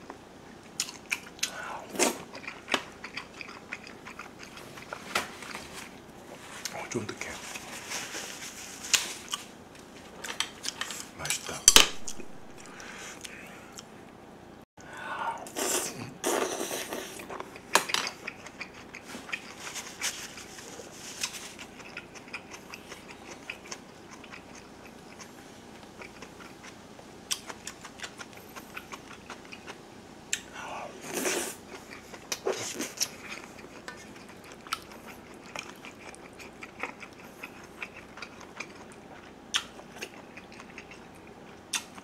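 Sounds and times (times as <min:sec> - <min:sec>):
chewing: 0:00.6 - 0:09.5, 0:16.5 - 0:30.5, 0:31.1 - 0:42.0.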